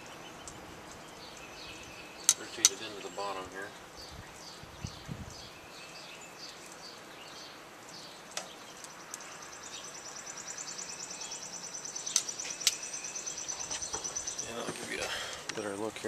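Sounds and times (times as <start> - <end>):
bird chirping: 0.0 - 16.0
outdoor ambience: 0.0 - 16.0
insect high-pitched trill: 8.8 - 14.6.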